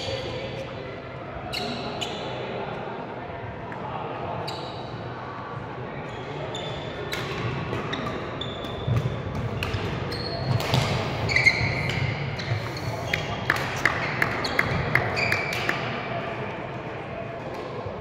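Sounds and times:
shoes squeaking on floor: 6.1 - 7.0, 7.9 - 9.0, 10.0 - 13.2, 14.4 - 15.5
rackets hitting shuttlecock: 7.1 - 11.1, 13.1 - 15.9.

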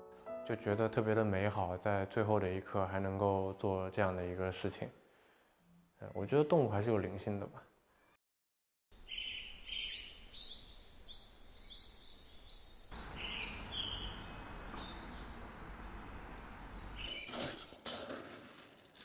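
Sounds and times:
small birds chirping: 9.0 - 18.1
steady outdoor hum: 13.0 - 17.2
scoop digging into dry kibble: 17.1 - 19.0.

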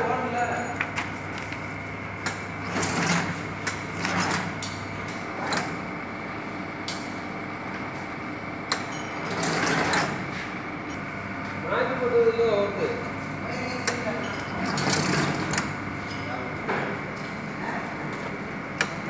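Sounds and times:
sewing machine motor hum: 2.4 - 4.7, 9.2 - 11.0, 14.6 - 15.8.

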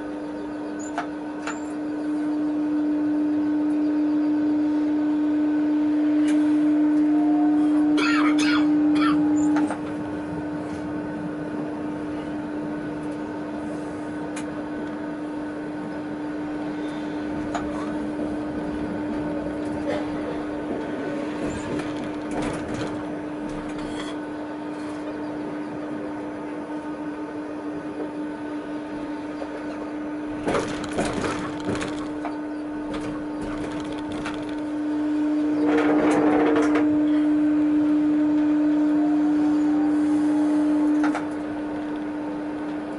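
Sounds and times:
tram electric hum: 0.0 - 42.9
tram wheels running on rails: 5.6 - 37.3, 38.2 - 42.9
clattering knocks: 30.4 - 34.7.

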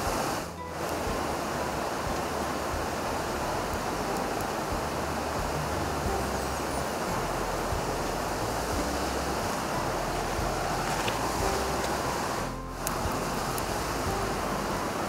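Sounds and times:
river water rushing: 0.0 - 15.0.

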